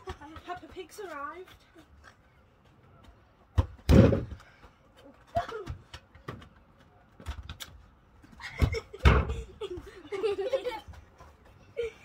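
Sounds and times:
ball banging into wooden boards: 0:03.6 - 0:04.4.

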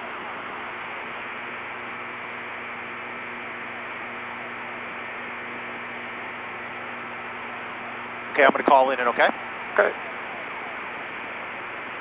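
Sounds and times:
low constant hum: 0:00.0 - 0:12.0
radio static hiss: 0:08.4 - 0:10.7.

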